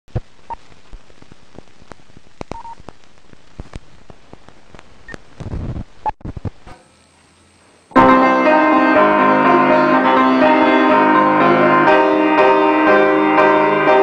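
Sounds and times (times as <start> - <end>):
crackling clicks and pops: 0.1 - 7.7
film soundtrack hiss: 0.1 - 14.0.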